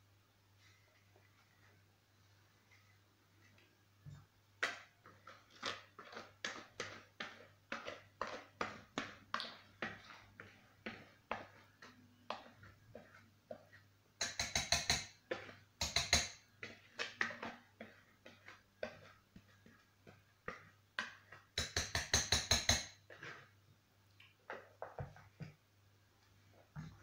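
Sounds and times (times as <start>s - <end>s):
rapid knocking on metal pan: 14.2s - 15.2s, 15.8s - 16.4s, 21.6s - 22.9s.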